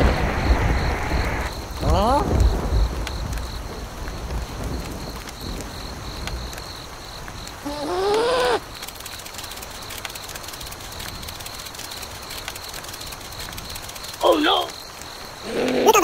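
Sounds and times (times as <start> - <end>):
rain hiss: 0.0 - 16.0
cartoon-style vocal cry: 7.6 - 8.6, 15.4 - 16.0.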